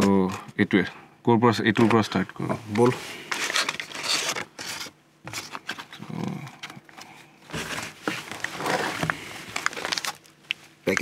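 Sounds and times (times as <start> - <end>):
food packaging rustling: 2.8 - 6.0, 7.5 - 11.0.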